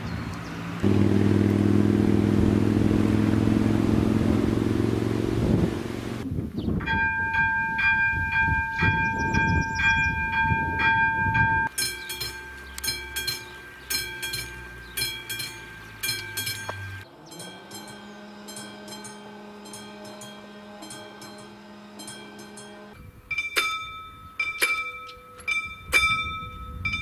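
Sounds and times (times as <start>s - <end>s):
train rumbling over crossing: 0.0s - 27.0s
level crossing warning bells: 6.8s - 27.0s.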